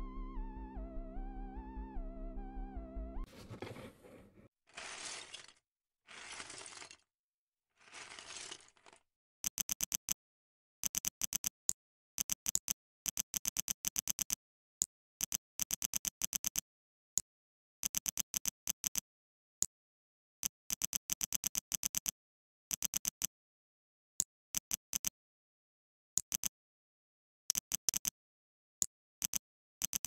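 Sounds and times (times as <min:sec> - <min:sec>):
box rustling: 0:03.3 - 0:07.0, 0:07.8 - 0:09.0.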